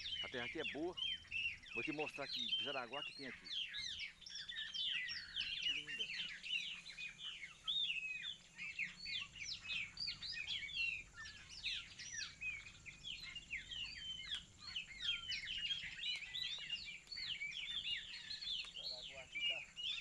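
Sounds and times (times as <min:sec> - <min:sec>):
many birds chirping: 0:00.0 - 0:20.0.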